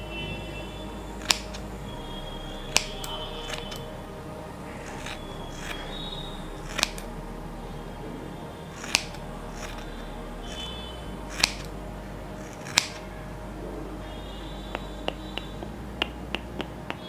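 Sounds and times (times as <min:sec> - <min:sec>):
steady low hum: 0:00.0 - 0:17.0
sharp clicks: 0:01.2 - 0:01.6, 0:02.7 - 0:03.8, 0:06.7 - 0:07.1, 0:08.8 - 0:09.8, 0:10.5 - 0:11.7, 0:12.5 - 0:13.0.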